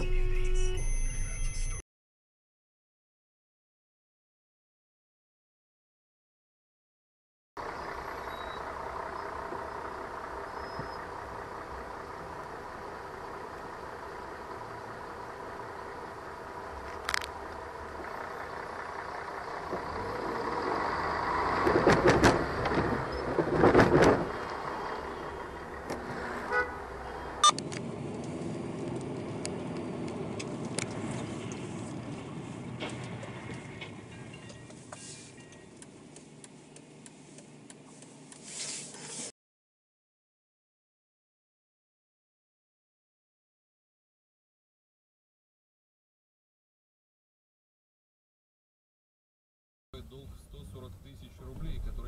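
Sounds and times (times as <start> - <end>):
car interior and traffic hum: 7.6 - 39.3, 50.0 - 52.0
sharp clicks: 35.5 - 38.4.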